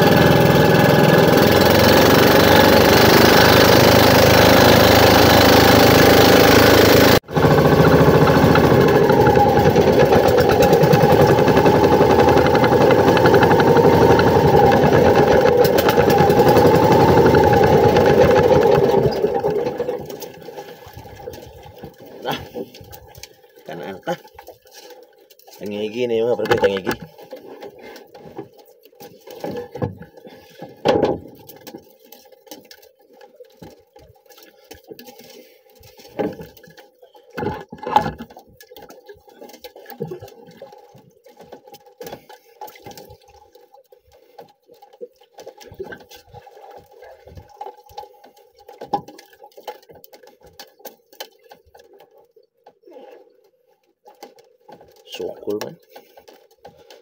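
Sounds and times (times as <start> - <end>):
water sloshing: 7.8 - 57.0
knocks and thuds against hull: 29.4 - 31.7.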